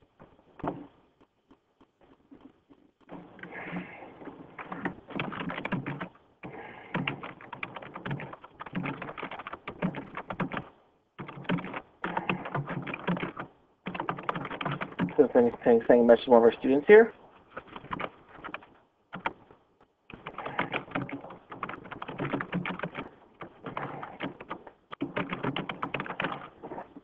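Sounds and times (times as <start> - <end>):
typing on computer keyboard: 4.6 - 15.3, 17.6 - 19.5, 20.1 - 26.6.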